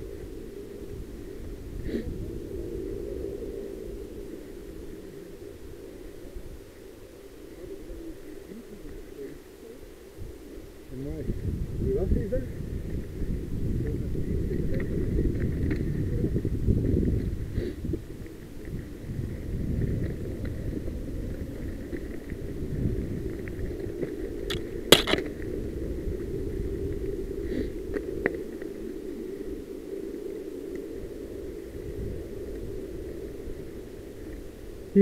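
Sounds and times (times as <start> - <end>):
wind and tyre noise: 0.0 - 35.0
sharp knock: 24.9 - 25.2.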